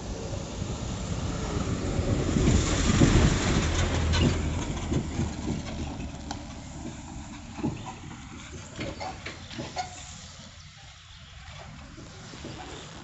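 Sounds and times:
vehicle passing by: 0:00.0 - 0:07.2.

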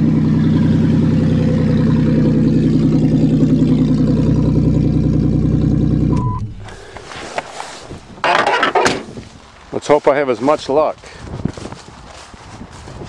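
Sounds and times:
car engine idling: 0:00.0 - 0:09.6.

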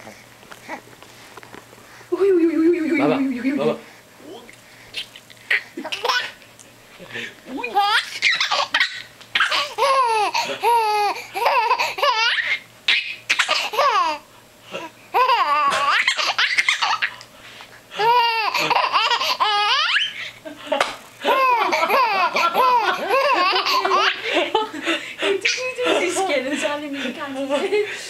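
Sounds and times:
infant giggling: 0:15.2 - 0:17.2, 0:18.0 - 0:20.4, 0:21.2 - 0:26.2.

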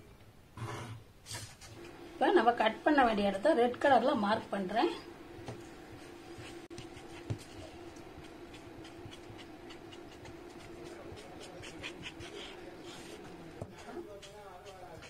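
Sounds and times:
low background hum: 0:00.0 - 0:15.0
marker pen scratching on paper: 0:05.9 - 0:15.0.

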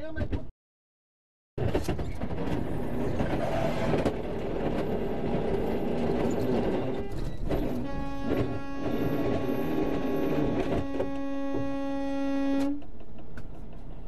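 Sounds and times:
diesel truck engine rumble: 0:02.4 - 0:14.0.

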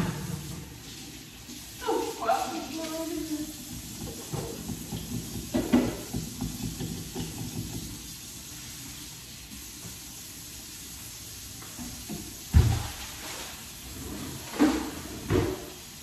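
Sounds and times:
dishes clattering: 0:00.0 - 0:00.7, 0:03.7 - 0:08.0
water running from tap into sink: 0:00.0 - 0:16.0.

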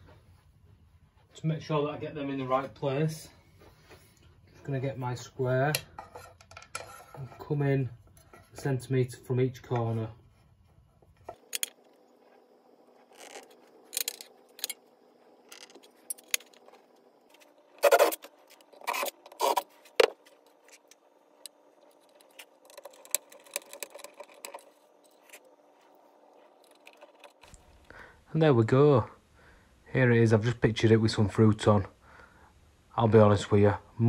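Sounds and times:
knocks and scrapes on workbench: 0:05.9 - 0:07.5
tools clicking and clinking: 0:13.2 - 0:14.8.

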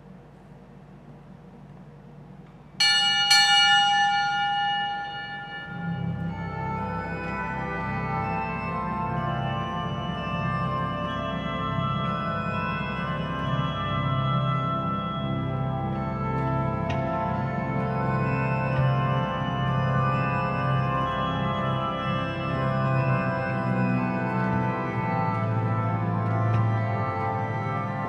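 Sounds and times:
bell ringing: 0:02.8 - 0:07.2
church organ chords: 0:02.8 - 0:28.0.

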